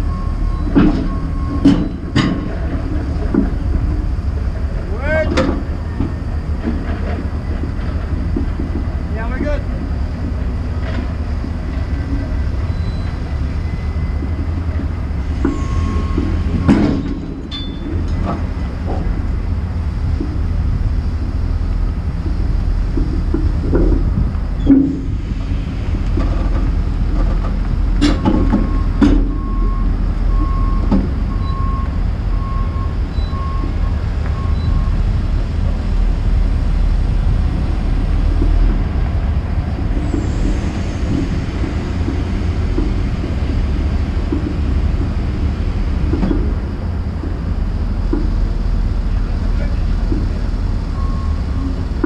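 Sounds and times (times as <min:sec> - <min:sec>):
diesel engine running: 0:00.0 - 0:52.0
beeping alarm: 0:15.4 - 0:18.0, 0:28.2 - 0:35.0, 0:50.9 - 0:51.9.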